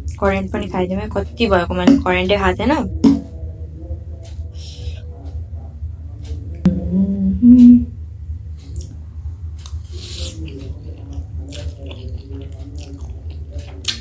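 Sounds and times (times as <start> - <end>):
person humming: 6.7 - 8.0
chewing with wet mouth clicks: 8.6 - 9.0, 9.6 - 14.0.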